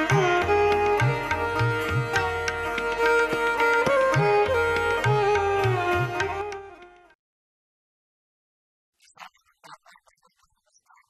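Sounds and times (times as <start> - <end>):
plucked strings: 0.0 - 7.1.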